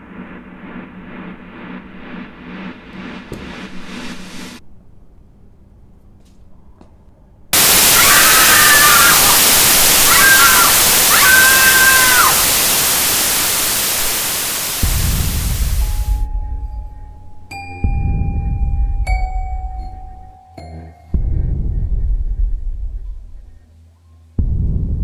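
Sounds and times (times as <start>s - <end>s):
low rumble: 0.0s - 5.0s, 12.5s - 20.3s, 21.2s - 23.7s, 24.4s - 25.0s
wavering shrill cries: 7.6s - 13.4s
loud static hiss: 7.6s - 16.3s.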